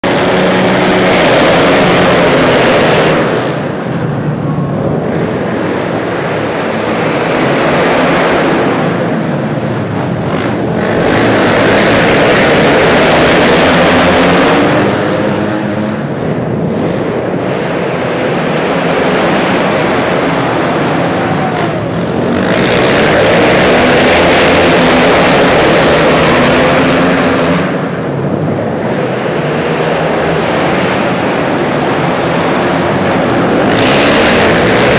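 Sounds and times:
motorcycles racing at full throttle: 0.0s - 34.9s.

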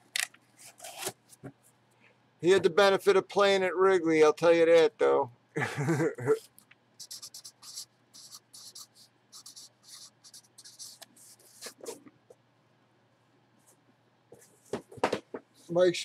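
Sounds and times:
marker writing on cardboard: 7.0s - 12.0s.

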